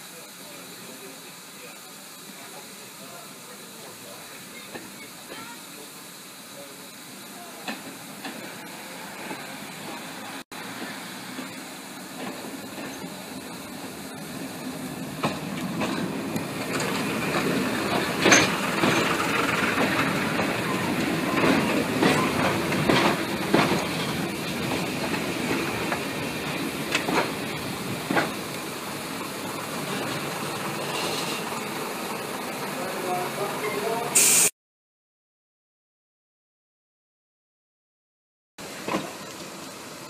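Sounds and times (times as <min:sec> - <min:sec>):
steady hiss: 0:00.0 - 0:34.5
diesel train passing: 0:06.0 - 0:34.2
wheels clicking over rails: 0:07.6 - 0:34.0.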